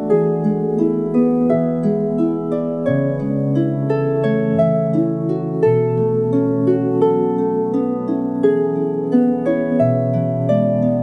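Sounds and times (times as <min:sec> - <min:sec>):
plucked lyre melody: 0:00.0 - 0:11.0.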